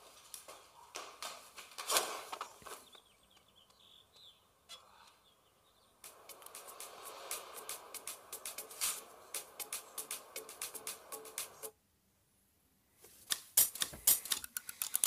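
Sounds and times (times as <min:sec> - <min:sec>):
birds chirping: 0:02.4 - 0:11.7
rustling swishes: 0:06.0 - 0:11.6
music: 0:06.0 - 0:11.7.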